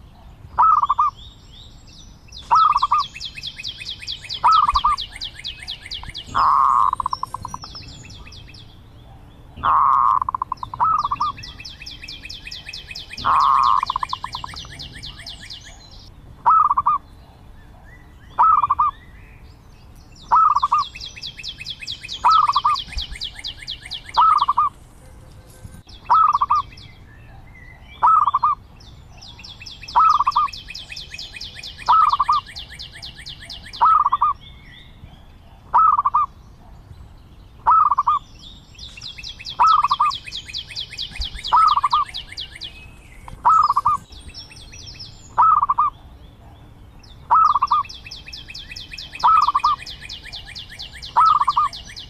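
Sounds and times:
dove cooing: 0.6s - 1.1s, 4.4s - 8.3s, 9.1s - 11.6s, 12.5s - 15.6s, 16.4s - 17.1s, 18.4s - 18.9s, 20.3s - 20.9s, 22.2s - 24.8s, 26.1s - 26.7s, 28.0s - 28.6s, 29.9s - 34.4s, 35.7s - 36.3s, 37.6s - 38.2s, 39.5s - 40.2s, 41.1s - 44.1s, 45.4s - 46.0s, 47.3s - 47.9s, 49.0s - 52.0s.

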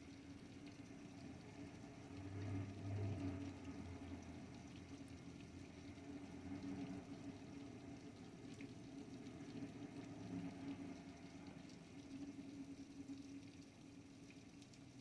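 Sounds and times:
cars driving through water: 1.3s - 11.6s.

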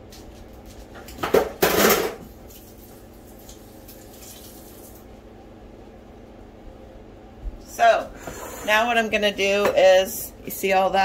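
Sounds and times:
dishes and utensils clattering: 1.1s - 2.2s.

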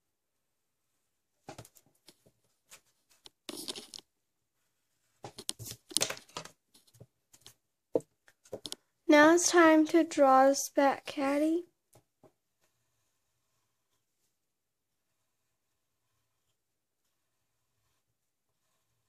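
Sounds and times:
pencil tapping down on paper: 7.9s - 8.8s
pencil scratching on paper: 12.5s - 19.0s.

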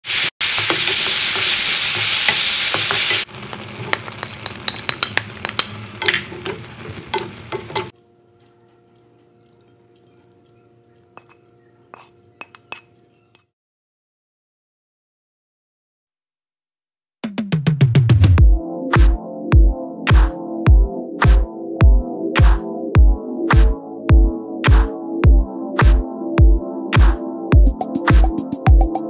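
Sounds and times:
chicken sizzling in a wok: 0.0s - 8.0s
spatula scraping a wok: 0.8s - 7.9s, 11.2s - 13.4s.

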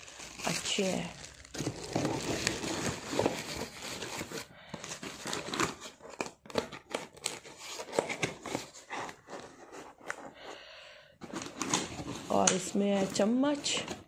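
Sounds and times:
plastic wrap crinkling: 0.0s - 9.2s.

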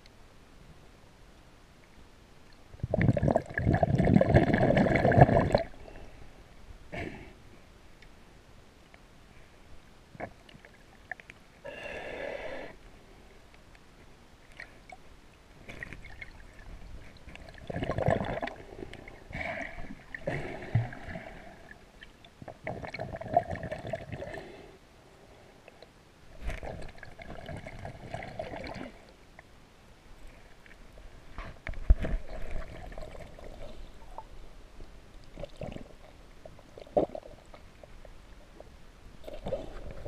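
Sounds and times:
gurgling water: 2.7s - 6.0s, 14.5s - 24.6s, 25.7s - 29.5s, 31.4s - 34.4s, 35.2s - 40.0s
breathing through a snorkel: 11.6s - 13.2s.

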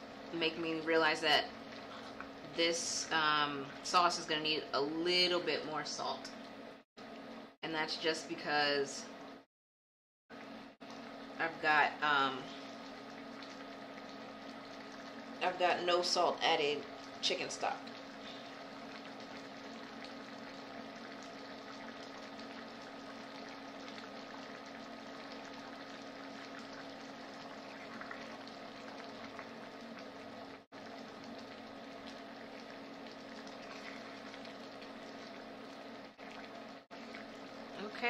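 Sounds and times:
sauce bubbling in a pan: 0.0s - 4.4s, 10.4s - 38.0s
steady low hum: 10.4s - 38.0s.

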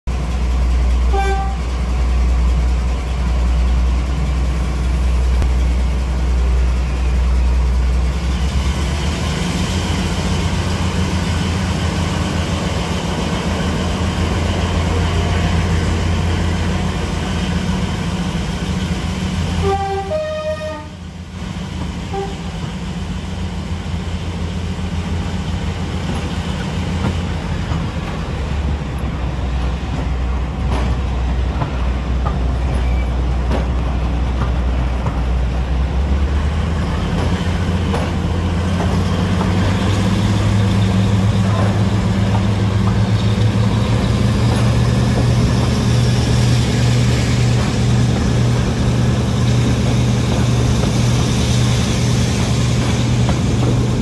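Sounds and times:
diesel locomotive engines running: 0.1s - 54.0s
train horn: 1.1s - 1.7s, 19.6s - 21.0s, 22.1s - 22.5s.

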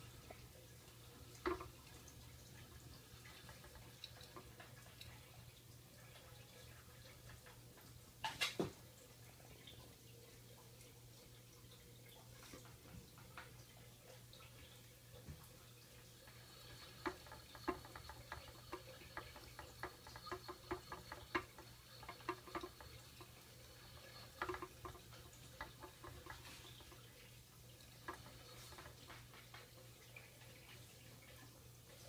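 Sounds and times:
claws clicking on plastic wheel: 3.2s - 4.8s, 16.3s - 27.2s, 27.8s - 29.6s.

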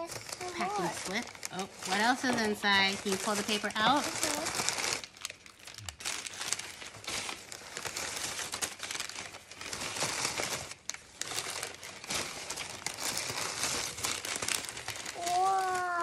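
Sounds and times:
packing paper crinkling: 0.0s - 16.0s.

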